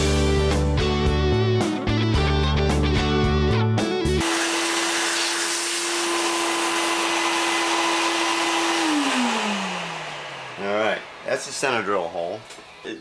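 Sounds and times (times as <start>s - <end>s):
milling machine motor humming: 4.2s - 12.6s.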